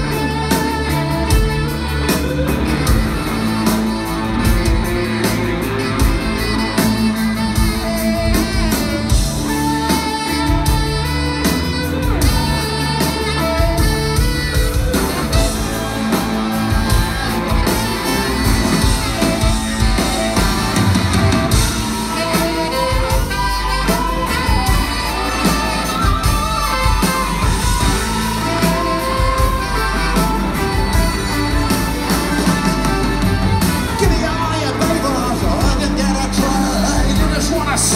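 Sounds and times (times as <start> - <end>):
bass guitar: 0.0 - 37.9
drums: 0.0 - 37.9
electric guitar: 0.0 - 37.9
saxophone: 0.0 - 37.9
man singing lead vocal: 33.9 - 37.9.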